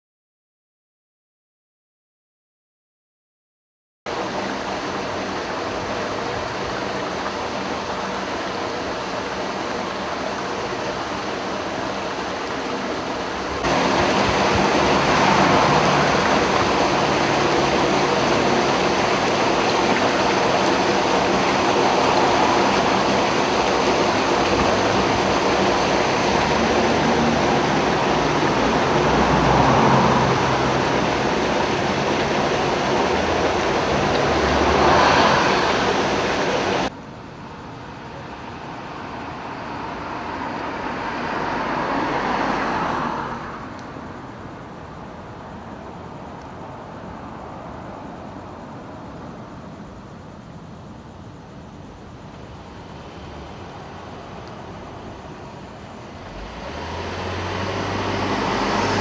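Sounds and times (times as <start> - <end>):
water rushing along gutter: 4.1 - 37.0, 38.0 - 45.0, 51.3 - 59.0.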